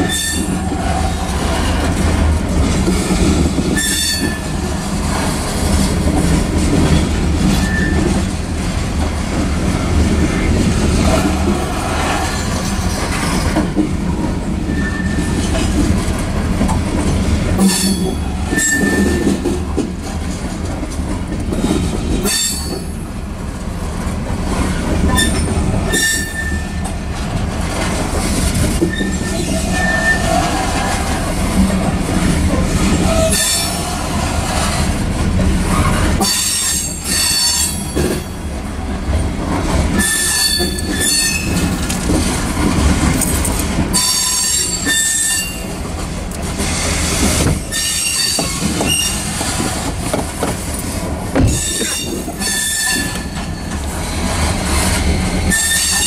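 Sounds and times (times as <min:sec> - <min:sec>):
train wheels rumbling on rail: 0:00.0 - 0:56.0
high-pitched wheel squeals: 0:07.6 - 0:08.1, 0:14.7 - 0:15.4, 0:17.7 - 0:19.3, 0:25.1 - 0:26.8, 0:28.8 - 0:30.8, 0:35.8 - 0:38.0, 0:40.0 - 0:41.6, 0:43.9 - 0:45.6, 0:47.7 - 0:49.3, 0:51.5 - 0:53.7, 0:55.5 - 0:56.0.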